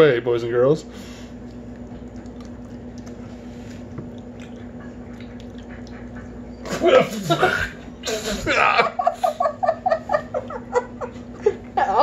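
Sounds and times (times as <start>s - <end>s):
chewing jelly bean: 1.3s - 6.9s
wet mouth clicks: 1.4s - 3.2s.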